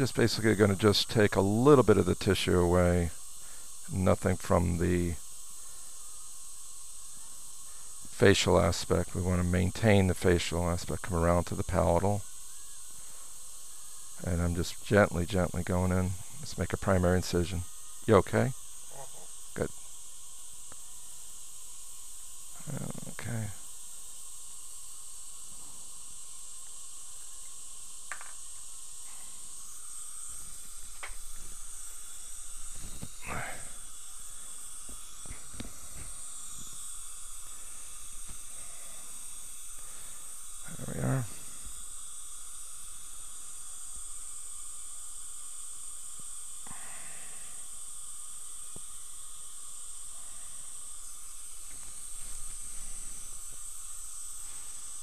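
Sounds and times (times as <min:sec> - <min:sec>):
dental suction hissing: 0:00.0 - 0:55.0
saliva ejector suction hissing: 0:28.8 - 0:43.3.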